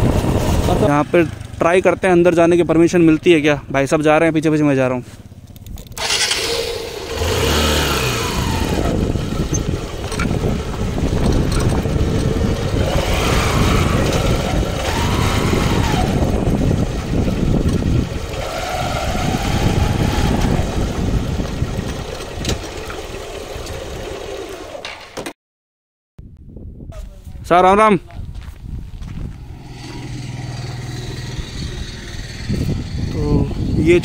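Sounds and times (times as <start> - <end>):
wind rumble on microphone: 0.0 - 1.4, 7.8 - 24.0, 26.2 - 34.0
motorcycle engine running: 0.0 - 25.0, 28.4 - 34.0.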